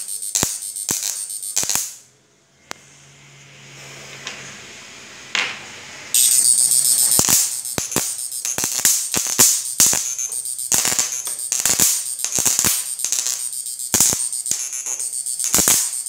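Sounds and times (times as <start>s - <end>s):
electric arcing crackling buzz: 0.0s - 2.0s, 6.2s - 16.0s.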